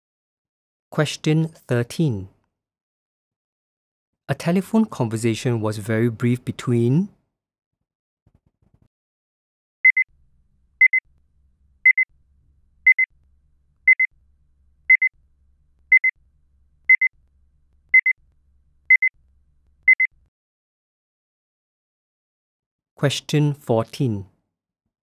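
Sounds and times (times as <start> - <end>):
alarm clock double beeps: 9.9 - 10.1, 10.8 - 11.0, 12.9 - 13.1, 13.9 - 14.1, 15.9 - 16.1, 16.9 - 17.1, 18.9 - 19.1, 19.9 - 20.1.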